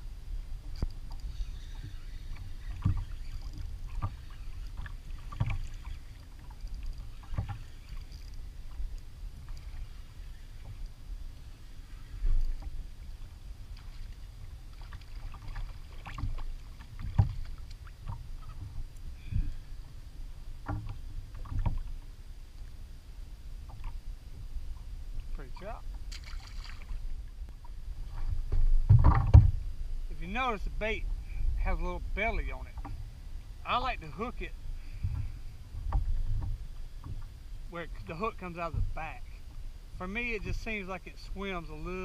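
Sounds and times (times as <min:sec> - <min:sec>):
low rumble of moving water: 0:00.0 - 0:42.0
waves lapping against hull: 0:00.0 - 0:42.0
knocks against hull: 0:28.1 - 0:29.6.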